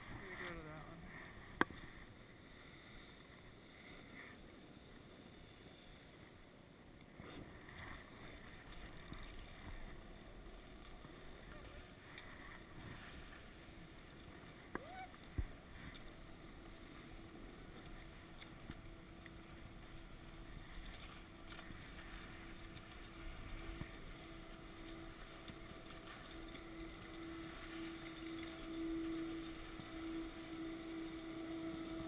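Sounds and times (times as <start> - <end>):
chairlift machine hum: 15.5 - 32.0.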